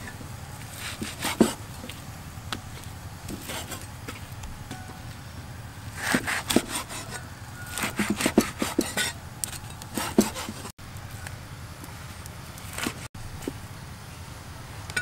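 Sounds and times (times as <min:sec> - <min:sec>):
cleaver chopping on wooden block: 0:00.9 - 0:01.6, 0:06.0 - 0:09.1, 0:09.9 - 0:10.7.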